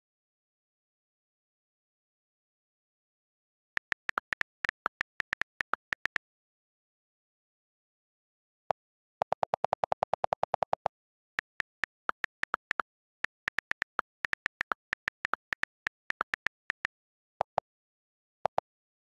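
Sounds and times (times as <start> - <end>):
fast run of keyboard clicks: 3.8 - 6.2, 9.2 - 17.6
typing ticks: 3.8 - 6.2, 9.2 - 17.6.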